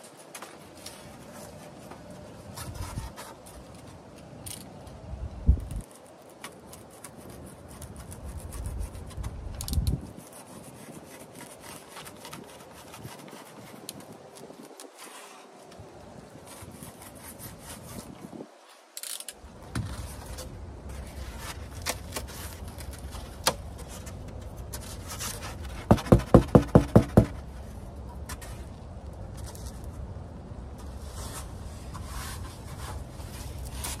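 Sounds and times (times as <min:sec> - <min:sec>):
foam board scraping and knocking: 0:19.7 - 0:28.7.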